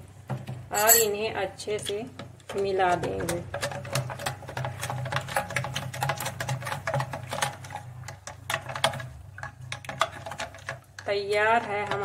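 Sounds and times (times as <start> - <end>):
spoon clinking against glass: 0.7 - 1.2.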